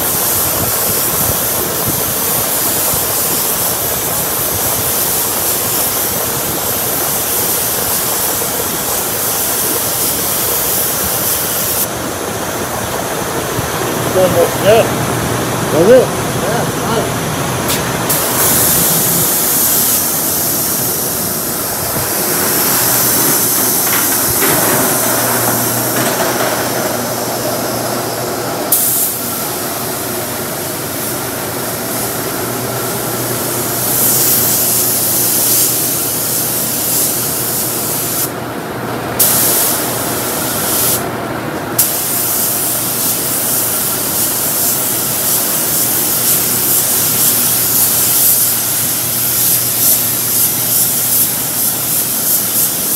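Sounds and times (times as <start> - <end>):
spray gun air hiss: 0.0 - 11.9, 17.6 - 38.4, 39.2 - 41.0, 41.8 - 52.9
steady low hum: 11.8 - 35.6.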